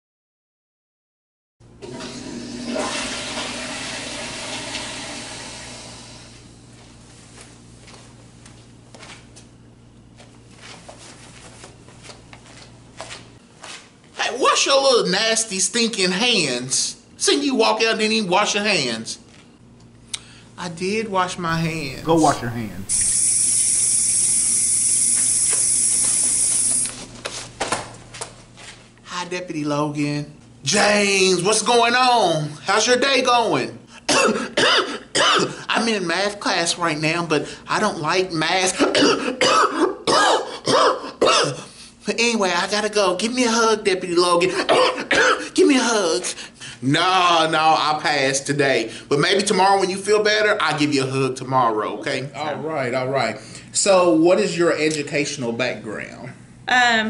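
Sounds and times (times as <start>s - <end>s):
toilet flushing: 1.8s - 6.4s
sink faucet water running: 2.5s - 6.1s, 21.5s - 26.9s.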